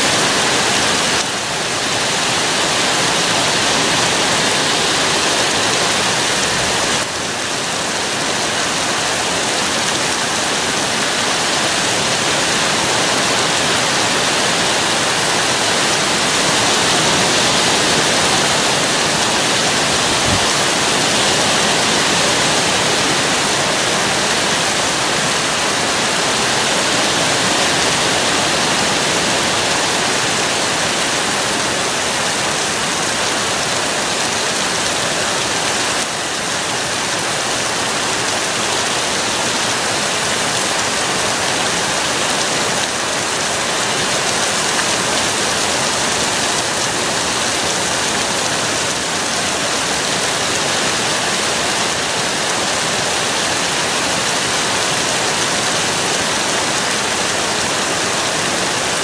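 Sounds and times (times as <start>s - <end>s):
heavy rain pouring: 0.0s - 59.0s.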